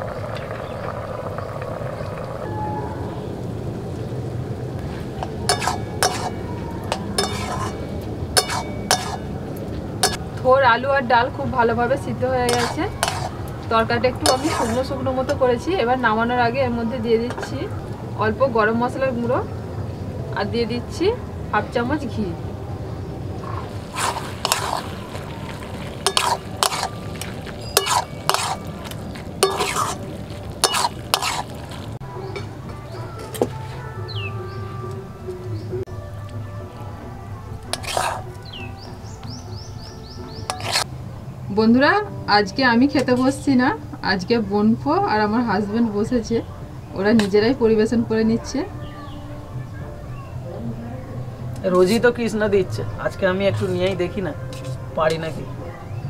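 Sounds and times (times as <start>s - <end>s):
low rumble: 0.0s - 10.4s
metal spatula scraping a pan: 5.2s - 9.3s, 12.5s - 13.4s, 14.2s - 15.0s, 23.4s - 32.0s, 37.7s - 38.4s, 40.5s - 40.9s
metal clinking against pot: 5.5s - 9.3s, 10.0s - 10.2s, 12.5s - 13.4s, 14.2s - 14.9s, 23.6s - 25.0s, 26.0s - 30.0s, 30.6s - 31.5s.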